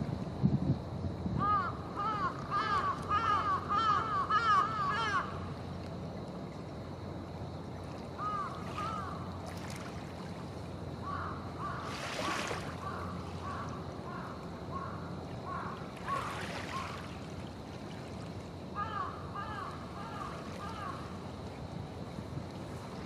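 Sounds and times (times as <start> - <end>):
waves lapping against shore: 4.6 - 23.0
water splashes: 5.7 - 11.0, 11.6 - 14.4, 15.1 - 18.8.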